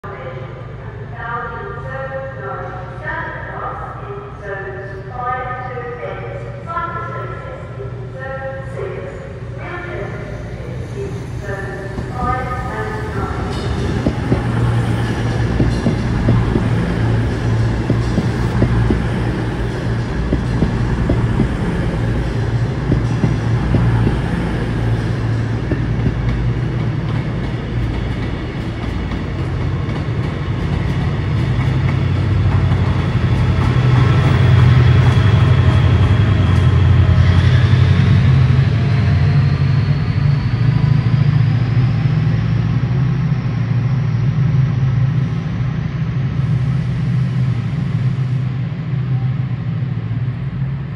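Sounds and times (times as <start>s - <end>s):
diesel locomotive engine drone: 0.0s - 50.9s.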